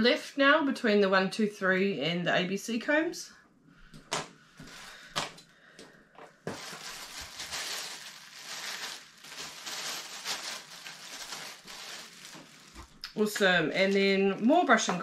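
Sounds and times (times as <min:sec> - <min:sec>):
plastic bag crinkling: 0:06.4 - 0:15.0.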